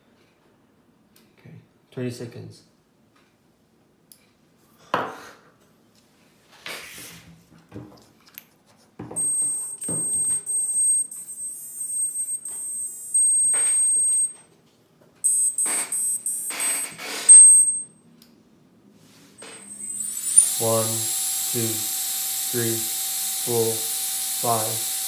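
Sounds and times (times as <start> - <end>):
high electronic tone from motor: 9.2 - 14.4, 15.2 - 17.8, 19.7 - 25.0
short electronic beeps: 9.2 - 14.4, 15.2 - 17.9.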